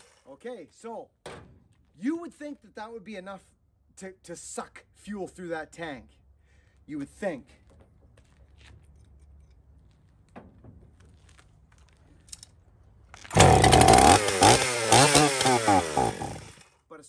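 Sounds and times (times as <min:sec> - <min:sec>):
two-stroke chainsaw revving: 0:13.3 - 0:16.7.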